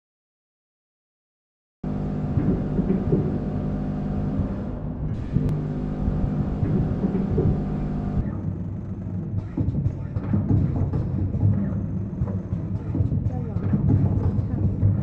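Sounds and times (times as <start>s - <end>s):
packaging machine hum: 1.9s - 8.2s
irregular mechanical noise: 1.9s - 15.0s.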